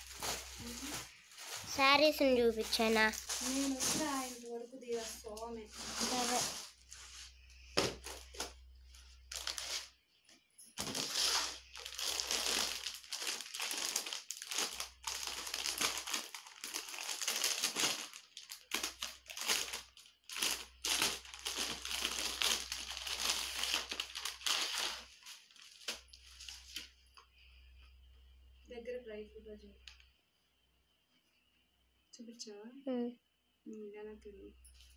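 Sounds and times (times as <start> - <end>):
plastic wrappers crinkling: 0.0 - 7.2, 7.8 - 10.0, 10.8 - 27.0.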